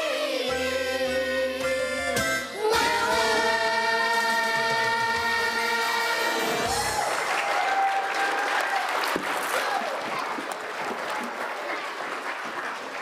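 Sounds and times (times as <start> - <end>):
children's choir singing: 0.0 - 7.0.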